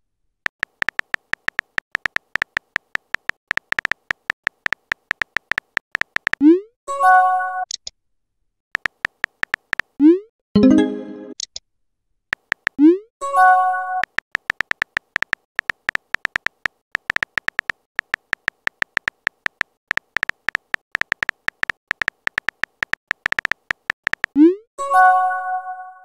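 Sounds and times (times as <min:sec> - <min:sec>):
on-screen keyboard key clicks: 0:00.5 - 0:06.4, 0:08.8 - 0:10.0, 0:12.3 - 0:12.8, 0:14.0 - 0:24.4.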